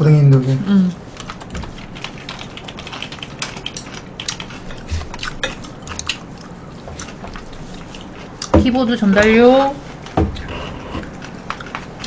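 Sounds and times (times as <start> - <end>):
computer keyboard typing: 1.2 - 4.6
soft knocks: 10.2 - 10.4.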